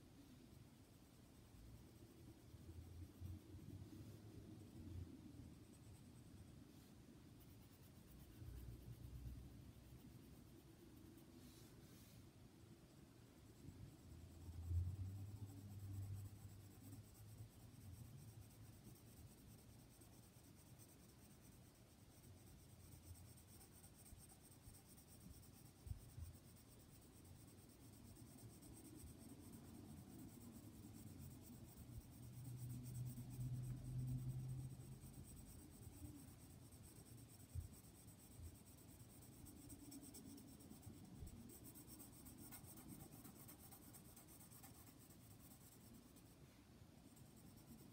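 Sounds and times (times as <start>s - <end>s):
pencil shading on paper: 5.4s - 12.4s, 15.2s - 47.9s.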